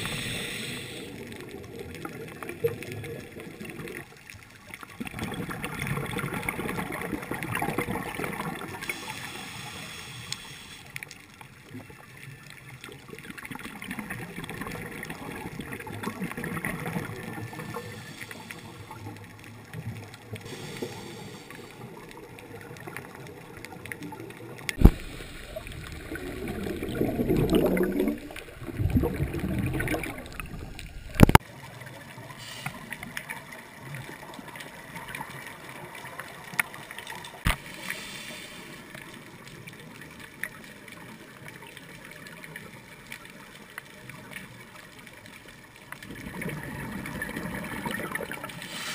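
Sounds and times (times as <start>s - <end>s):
diver's bubbles gurgling: 0.0s - 4.3s, 4.9s - 9.4s, 12.8s - 31.4s, 45.8s - 48.9s
underwater water noise: 0.0s - 48.9s.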